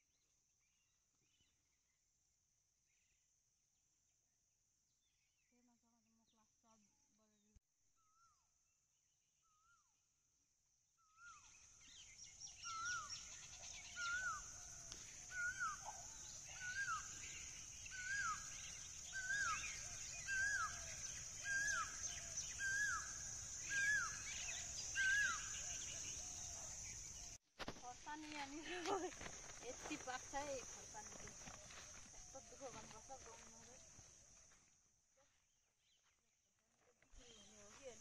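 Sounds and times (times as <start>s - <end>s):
birds chirping: 11.2s - 27.4s
high insect buzz: 11.8s - 27.4s.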